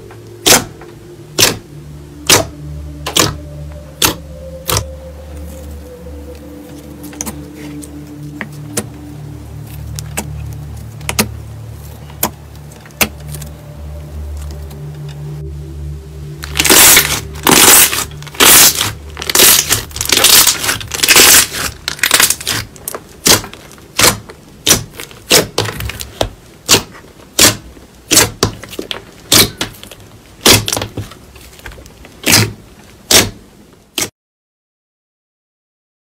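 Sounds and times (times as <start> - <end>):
slime squelching and popping: 16.4 - 31.0.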